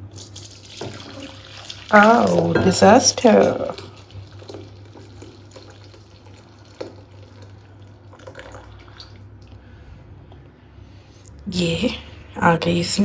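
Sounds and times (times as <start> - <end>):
low steady hum: 0.0 - 13.0
liquid pouring and splashing: 0.1 - 9.3.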